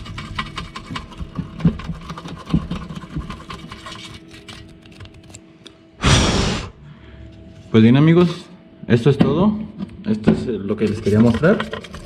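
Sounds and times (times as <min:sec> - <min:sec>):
plastic hose scraping in metal bore: 0:10.7 - 0:12.0.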